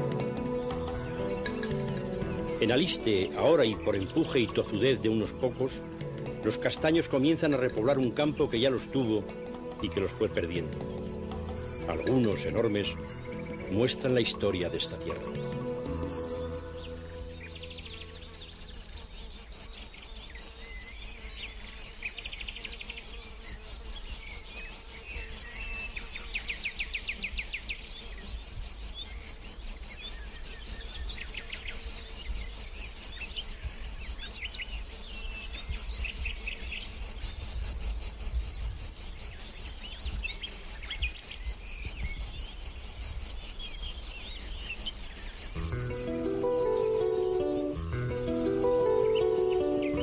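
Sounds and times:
insect chirring: 0.0s - 50.0s
small birds chirping: 0.3s - 50.0s.

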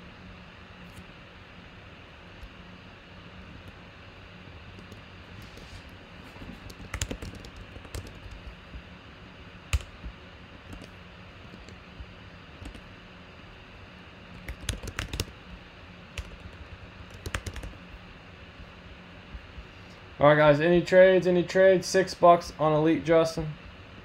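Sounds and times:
steady low hum: 0.0s - 24.0s
typing on computer keyboard: 4.7s - 5.0s, 6.4s - 8.5s, 9.7s - 10.0s, 10.7s - 10.9s, 11.5s - 11.8s, 12.6s - 12.8s, 14.3s - 15.3s, 16.2s - 17.8s.

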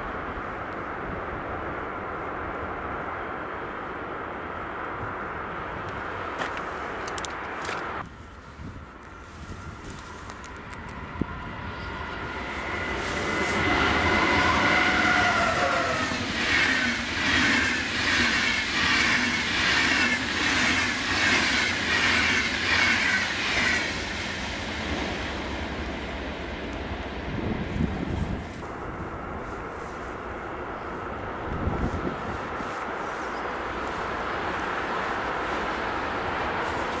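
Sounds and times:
train coaches rushing past: 9.1s - 37.0s
locomotive tones falling in pitch: 11.0s - 17.0s
rhythmic beat of train wheels: 11.9s - 26.2s.

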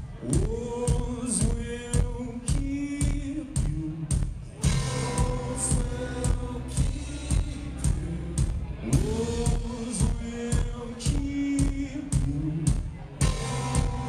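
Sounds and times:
steady drum beat: 0.0s - 14.0s
electric guitars: 13.2s - 14.0s.

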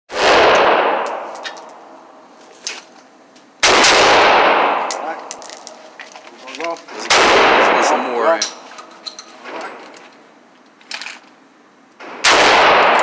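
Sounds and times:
rifle shots echoing: 0.1s - 1.4s, 3.6s - 5.5s, 7.1s - 8.0s, 12.0s - 13.0s
light metallic clinks: 1.1s - 1.8s, 4.9s - 6.2s.

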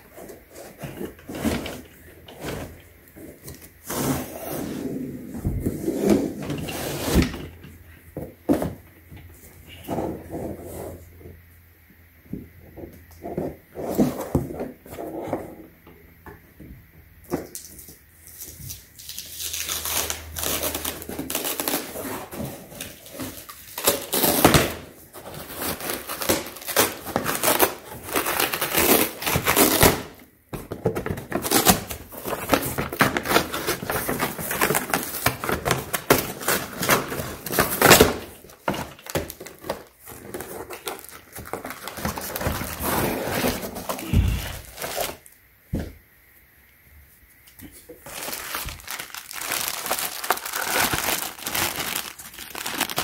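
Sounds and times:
cardboard ripping and crunching: 3.6s - 7.5s, 19.0s - 30.2s, 30.9s - 45.3s, 48.0s - 53.0s.

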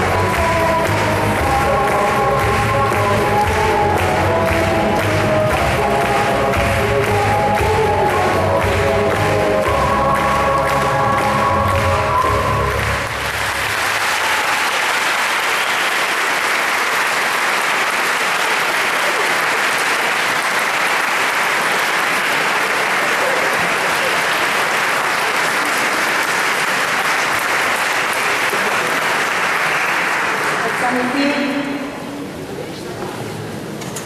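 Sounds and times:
audience clapping: 0.0s - 31.7s.

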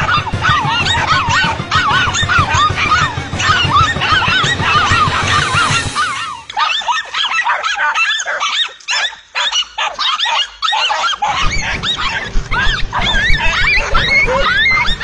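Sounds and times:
dogs barking and yelping: 0.0s - 15.0s
low rumbling noise: 11.2s - 15.0s.

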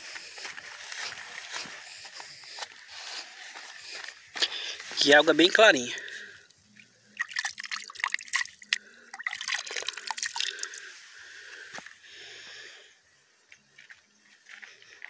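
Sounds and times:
water dripping: 6.0s - 10.9s
hand splashing in water: 7.1s - 10.8s.

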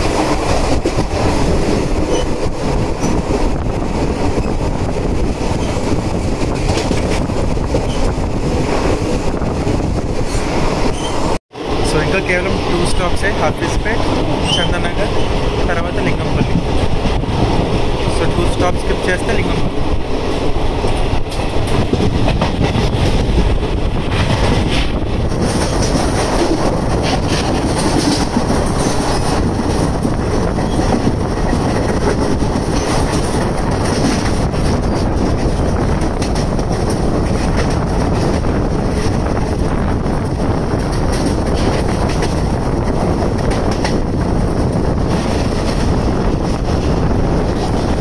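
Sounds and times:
train running on track: 0.0s - 48.0s
wheels clicking over rail joints: 20.8s - 48.0s.

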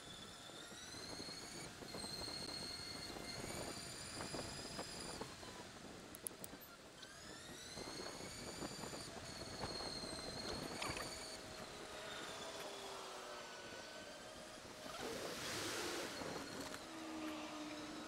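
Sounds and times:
electric bike motor whining: 0.0s - 18.0s
wind noise: 1.0s - 6.5s, 7.2s - 11.8s.

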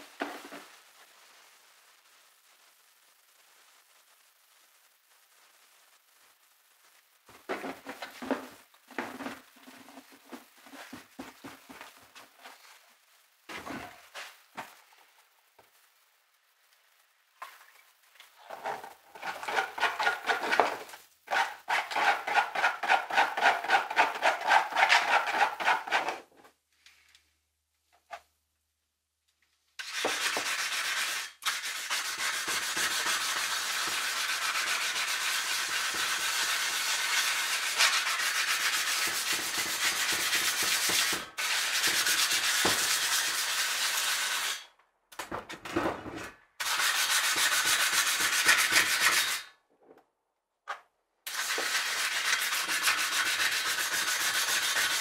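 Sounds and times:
sandpaper scratching on metal: 21.3s - 26.1s, 29.8s - 44.6s, 46.6s - 49.5s, 51.3s - 55.0s.

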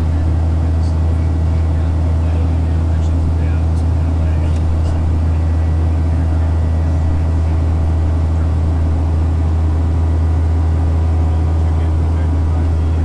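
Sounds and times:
airplane cabin engine drone: 0.0s - 13.0s.

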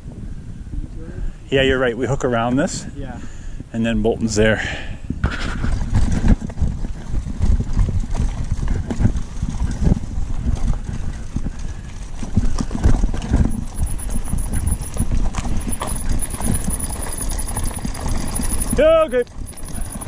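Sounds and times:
wind on microphone: 0.0s - 4.3s, 4.9s - 20.0s
bicycle rattling over gravel: 5.5s - 20.0s.

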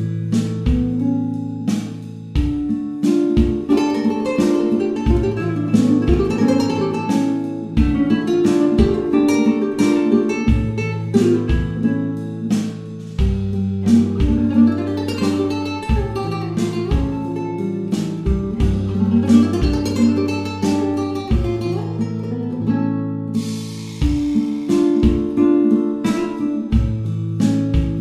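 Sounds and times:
plucked guitar melody: 0.0s - 28.0s
bass line: 10.4s - 24.4s.

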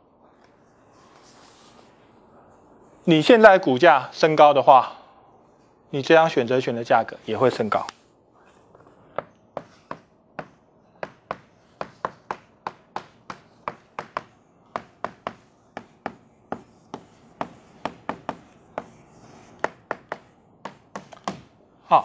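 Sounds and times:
chalk tapping on a blackboard: 9.2s - 21.5s.

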